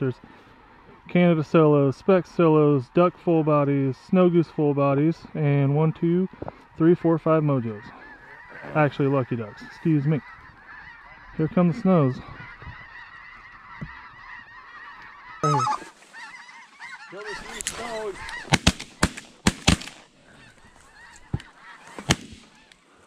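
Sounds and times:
geese honking overhead: 0:00.0 - 0:23.0
shotgun shots: 0:18.5 - 0:20.1, 0:22.0 - 0:22.6.

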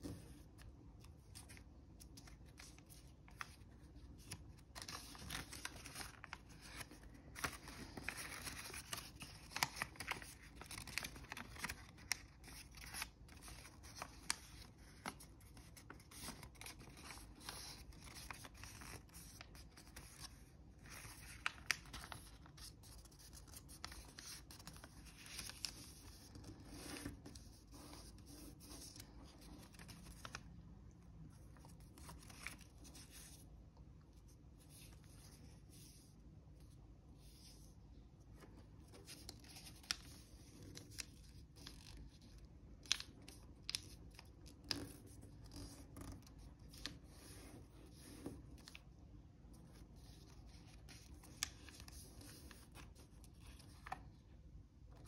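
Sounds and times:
paper rustling and crinkling: 0:00.0 - 0:30.6, 0:31.3 - 0:33.5
paper crackles and clicks: 0:00.6 - 0:30.6, 0:38.4 - 0:48.9, 0:50.0 - 0:54.1.

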